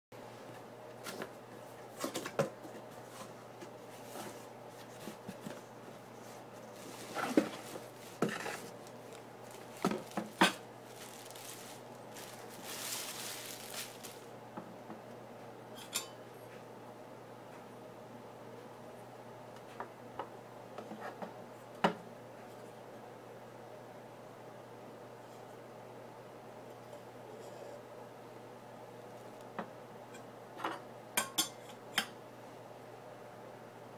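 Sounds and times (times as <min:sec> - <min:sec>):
packaging rustling: 0:06.6 - 0:14.3.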